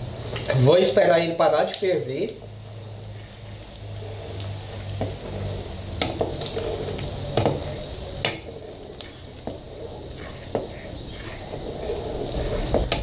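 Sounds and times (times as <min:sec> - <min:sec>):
sweet mixture bubbling: 0:00.0 - 0:13.0
spatula scraping metal pot: 0:02.8 - 0:13.0.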